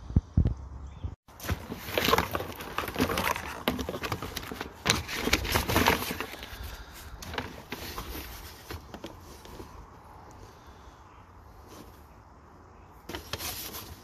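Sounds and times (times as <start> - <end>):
rummaging in cardboard box: 1.3 - 10.0, 13.0 - 14.0.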